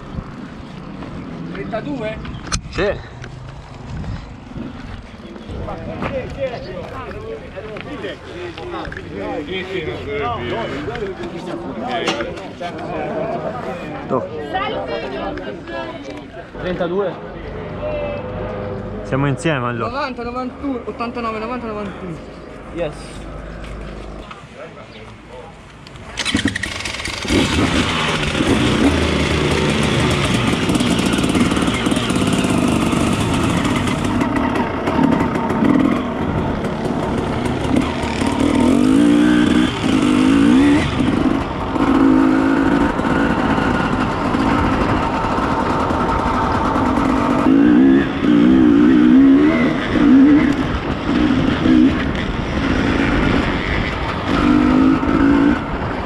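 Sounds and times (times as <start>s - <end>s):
motorcycle engine revving: 26.0s - 56.0s.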